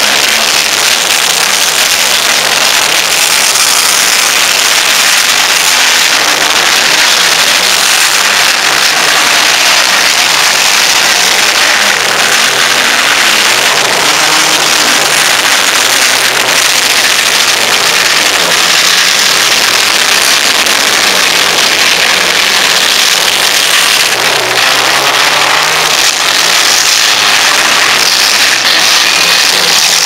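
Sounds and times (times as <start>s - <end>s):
car engines revving: 0.0s - 30.0s.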